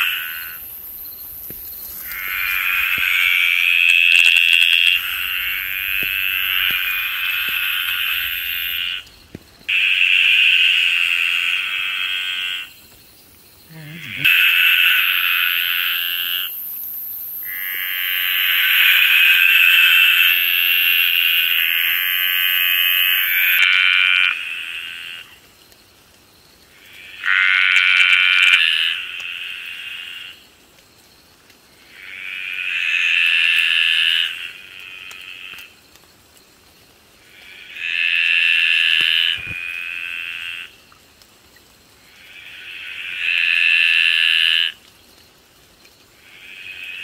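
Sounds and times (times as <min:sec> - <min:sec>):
tree frog calling: 0:00.0 - 0:13.0, 0:13.6 - 0:25.4, 0:26.7 - 0:30.4, 0:31.8 - 0:35.7, 0:37.2 - 0:40.8, 0:42.0 - 0:44.8, 0:46.2 - 0:47.0
high insect trill: 0:00.0 - 0:23.7.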